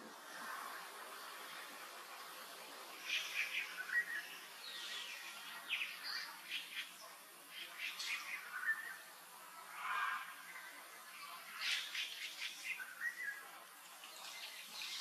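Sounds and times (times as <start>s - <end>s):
birds chirping: 0.7s - 15.0s.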